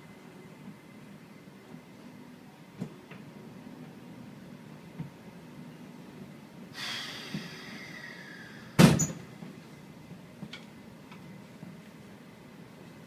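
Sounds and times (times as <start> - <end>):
pneumatic door air hiss: 6.7 - 9.3
door banging shut: 8.8 - 9.2.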